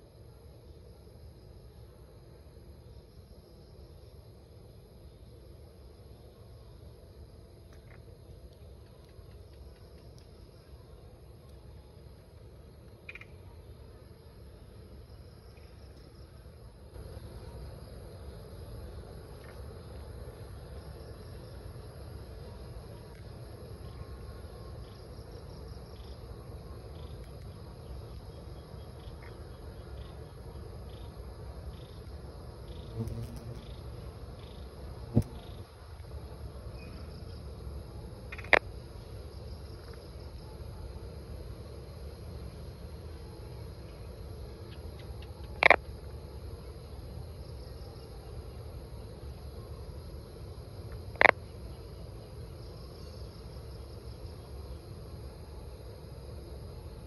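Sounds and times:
crickets trilling: 0.0s - 57.0s
night insects chirring: 0.0s - 57.0s.

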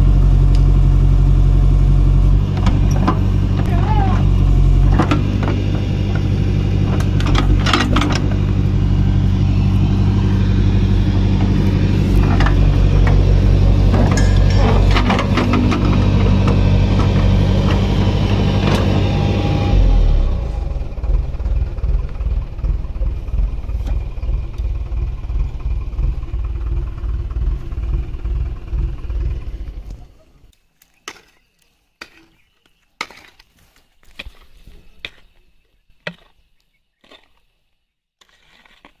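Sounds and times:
vehicle engine running: 0.0s - 30.5s
hoe striking dirt: 2.4s - 22.2s, 31.0s - 35.4s, 36.0s - 37.4s, 38.2s - 39.0s.

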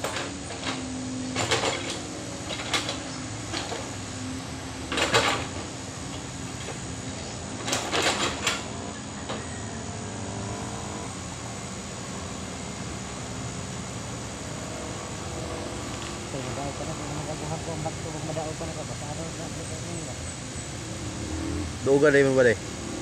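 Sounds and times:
metallic clanks and knocks: 0.0s - 4.0s, 4.9s - 6.8s, 7.6s - 9.4s
excavator diesel engine running: 0.0s - 23.0s.

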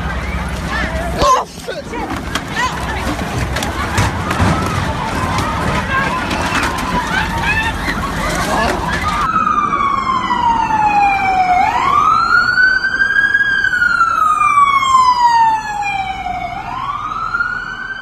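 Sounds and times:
street noise: 0.0s - 18.0s
emergency siren wailing: 4.1s - 18.0s.

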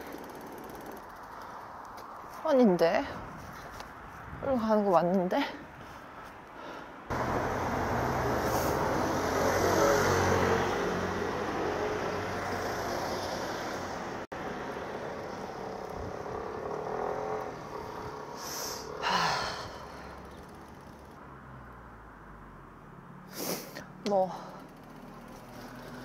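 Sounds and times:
cars passing: 6.0s - 26.0s.

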